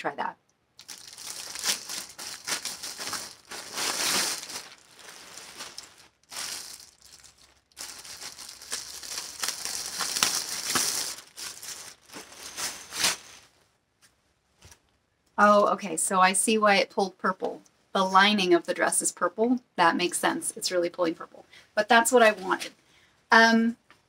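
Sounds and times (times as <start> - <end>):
plastic packaging crinkling: 0.8 - 13.6.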